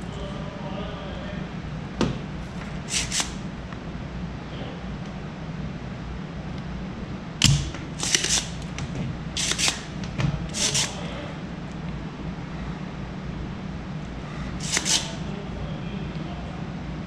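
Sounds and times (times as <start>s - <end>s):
desoldering pump snapping: 7.4s - 11.1s, 14.6s - 15.2s.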